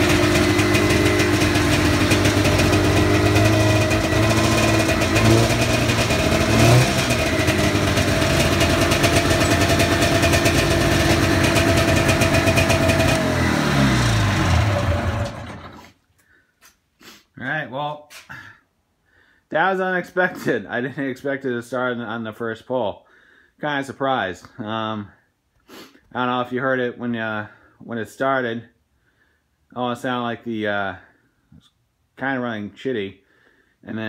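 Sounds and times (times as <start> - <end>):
snowmobile engine running: 0.0 - 15.8.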